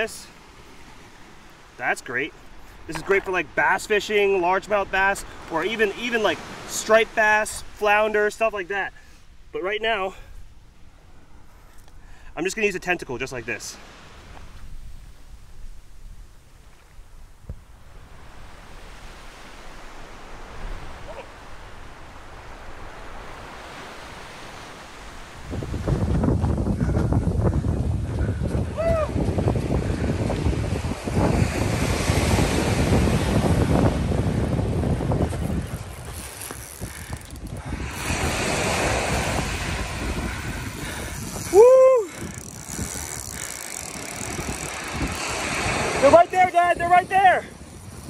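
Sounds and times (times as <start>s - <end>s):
surf washing on sandy beach: 0.0s - 10.1s, 12.3s - 48.0s
wind noise on microphone: 14.1s - 48.0s.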